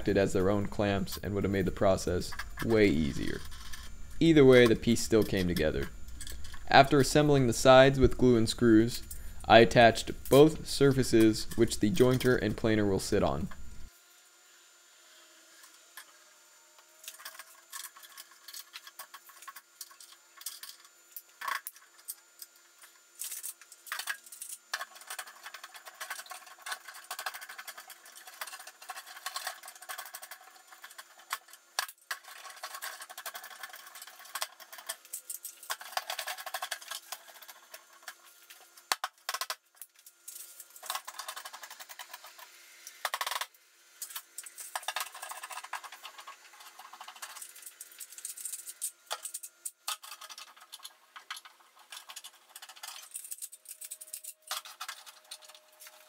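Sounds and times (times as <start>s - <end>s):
metal clamps clicking and scraping: 17.0s - 56.0s.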